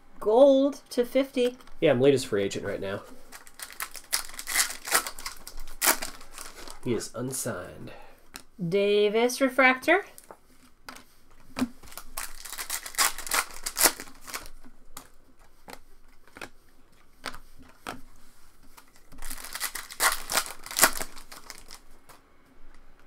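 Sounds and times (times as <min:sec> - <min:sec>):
foil wrappers crinkling: 0:02.6 - 0:07.1, 0:10.2 - 0:22.0
sharp rustling: 0:03.0 - 0:07.0.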